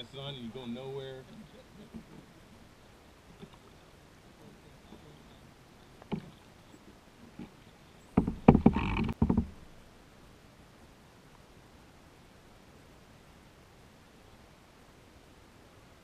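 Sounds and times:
water splashing: 0:00.0 - 0:09.8
kayak paddle knocks: 0:06.0 - 0:06.4, 0:07.4 - 0:09.6.

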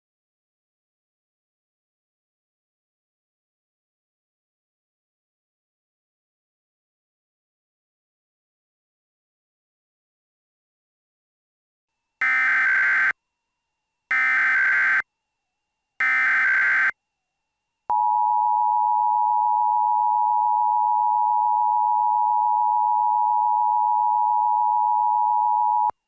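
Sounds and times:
digital data tone bursts: 0:12.2 - 0:13.2, 0:14.1 - 0:15.0, 0:16.0 - 0:17.0.

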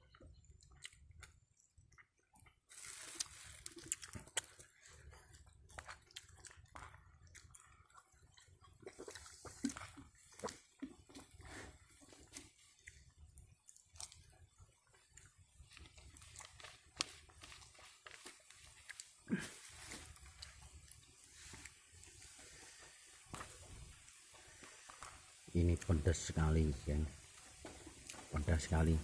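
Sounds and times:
person chewing food: 0:00.0 - 0:25.4, 0:27.3 - 0:28.3
small clicks and soft crunches: 0:00.1 - 0:11.3, 0:12.0 - 0:21.8.

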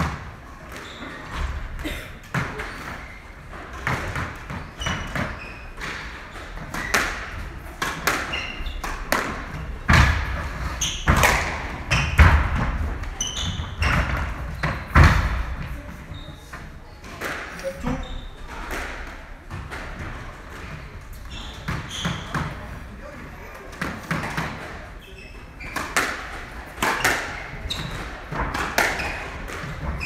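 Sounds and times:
shoes squeaking on wooden floor: 0:00.7 - 0:07.4, 0:08.0 - 0:17.0, 0:17.6 - 0:18.6, 0:20.1 - 0:23.6, 0:24.9 - 0:26.0, 0:26.8 - 0:30.0
squash ball hitting walls: 0:03.7 - 0:15.7, 0:25.6 - 0:30.0.

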